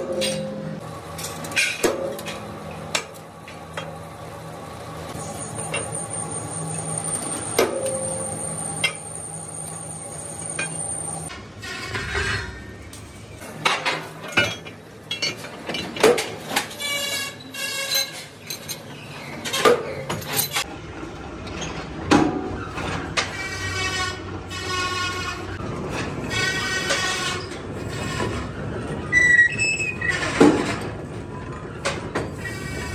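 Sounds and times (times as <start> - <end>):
machine hum: 2.2 - 11.4
metal rim clanking and ringing: 5.3 - 11.3.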